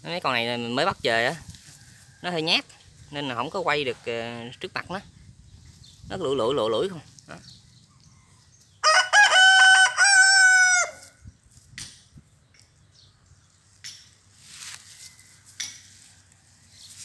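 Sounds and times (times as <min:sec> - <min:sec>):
rooster crowing: 0:08.2 - 0:11.2.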